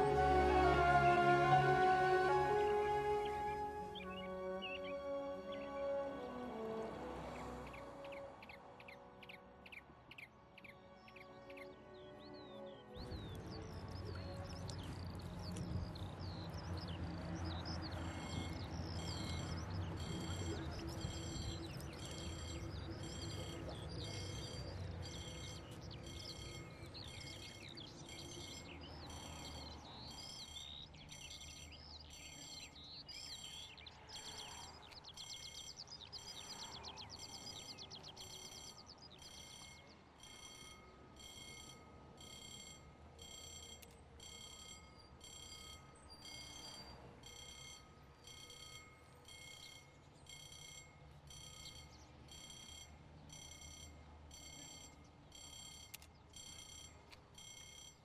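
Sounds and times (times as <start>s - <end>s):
level-crossing alarm beeping: 0.0s - 6.1s, 13.0s - 58.0s
birds chirping: 0.0s - 42.5s.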